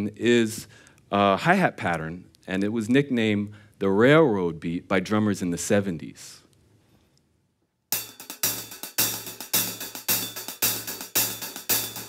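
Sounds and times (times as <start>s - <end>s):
hi-hat played with drumsticks: 7.9s - 12.0s.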